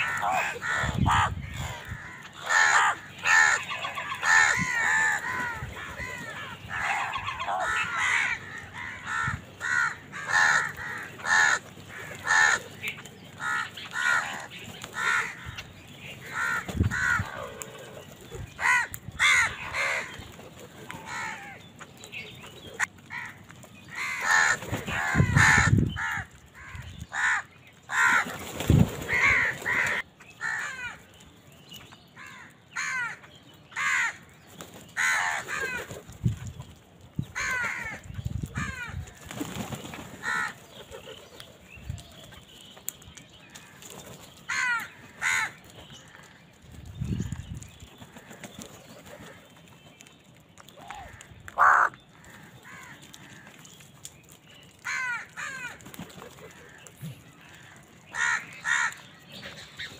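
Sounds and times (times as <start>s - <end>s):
crows cawing: 0.0s - 21.6s, 22.8s - 31.1s, 32.2s - 34.3s, 35.0s - 36.1s, 37.4s - 39.3s, 40.2s - 40.8s, 44.5s - 46.5s, 50.8s - 53.6s, 54.8s - 59.9s.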